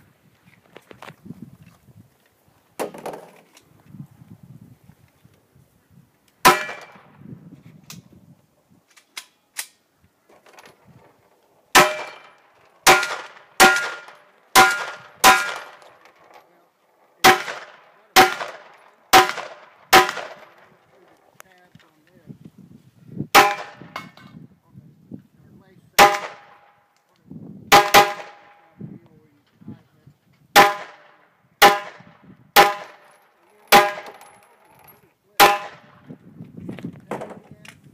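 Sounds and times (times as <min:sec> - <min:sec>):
pistol shots: 0:06.4 - 0:07.1, 0:11.8 - 0:15.8, 0:17.2 - 0:20.7, 0:23.4 - 0:24.0, 0:26.0 - 0:26.7, 0:27.7 - 0:28.6, 0:30.6 - 0:33.1, 0:33.7 - 0:34.2
gunshots with ringing tail: 0:06.4 - 0:07.2, 0:11.7 - 0:15.8, 0:17.2 - 0:20.7, 0:23.4 - 0:24.0, 0:26.0 - 0:26.8, 0:27.7 - 0:28.7, 0:30.6 - 0:33.1, 0:33.7 - 0:34.2.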